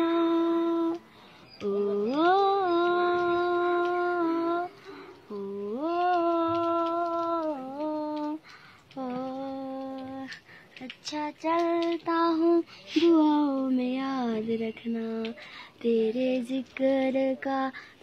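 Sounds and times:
child breathing: 15.4s - 15.8s, 17.7s - 18.0s.

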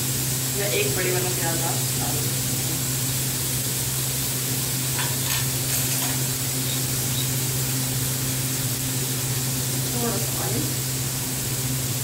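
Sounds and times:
food sizzling in frying pan: 0.0s - 12.0s
low even hum: 0.0s - 12.0s.

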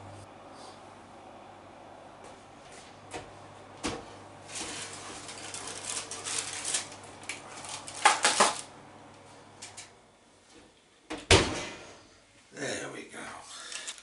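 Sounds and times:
rustling and scraping: 4.5s - 8.6s.

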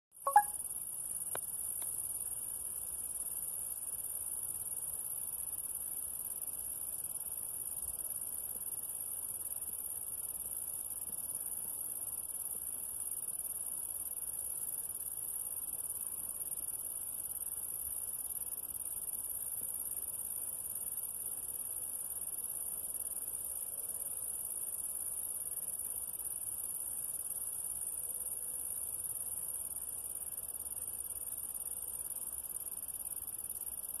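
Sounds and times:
short click: 0.3s - 0.5s
steady high-pitched hiss: 0.3s - 34.0s.

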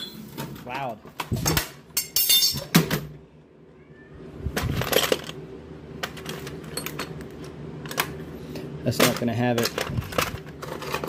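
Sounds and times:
metal tools clinking and rattling: 0.0s - 3.1s, 6.1s - 7.2s, 8.9s - 11.0s.

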